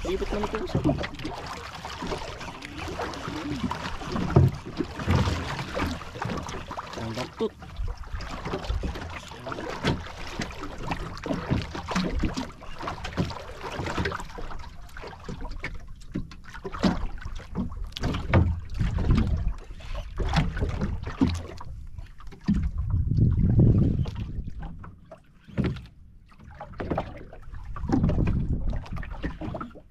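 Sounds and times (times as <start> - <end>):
water slapping boat hull: 0.0 - 29.9
wind buffeting microphone: 22.6 - 24.6, 27.7 - 29.3.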